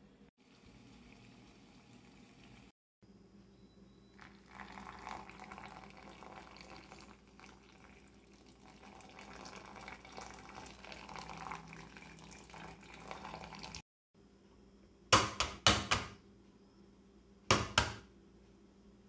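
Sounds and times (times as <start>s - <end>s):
water pouring onto coffee: 4.2s - 13.8s.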